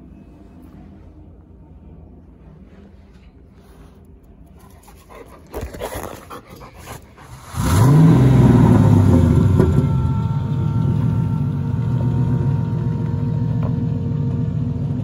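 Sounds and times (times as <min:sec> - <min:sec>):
dog: 0:04.6 - 0:07.4
pickup engine starting and idling: 0:07.3 - 0:15.0.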